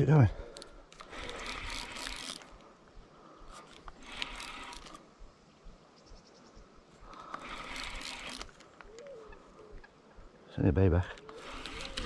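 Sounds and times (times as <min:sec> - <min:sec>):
fishing reel whirring: 0:00.6 - 0:02.7, 0:03.5 - 0:05.1, 0:07.1 - 0:08.7, 0:11.2 - 0:12.0.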